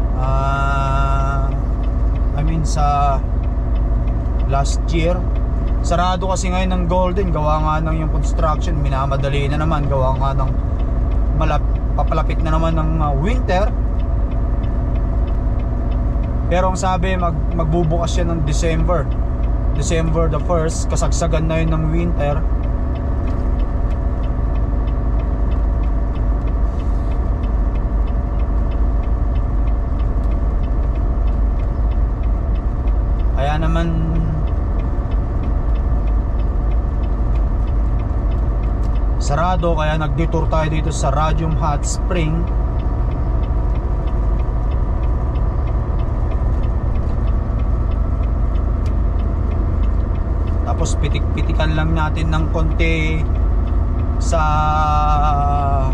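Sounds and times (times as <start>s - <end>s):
fast regular ticking: 0.0s - 55.9s
truck engine and road drone: 0.0s - 55.9s.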